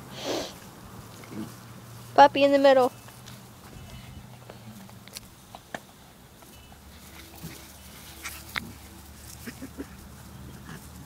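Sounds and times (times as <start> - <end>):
puppies growling and squeaking: 3.8 - 11.0.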